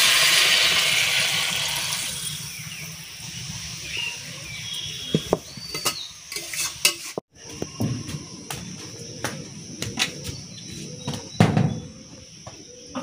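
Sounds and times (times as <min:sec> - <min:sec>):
metal spatula scraping a wok: 0:05.8 - 0:07.2.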